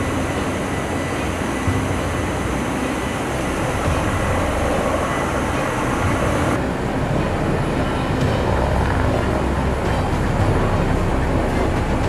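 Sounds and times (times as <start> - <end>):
rotor-wash spray hiss: 0.0 - 6.8
helicopter rotor and engine rumble: 0.0 - 12.0.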